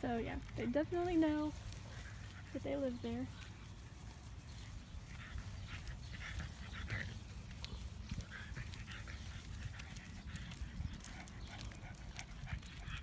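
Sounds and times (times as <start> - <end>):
dog panting and sniffing: 0.6 - 13.0
light ticks: 5.4 - 13.0.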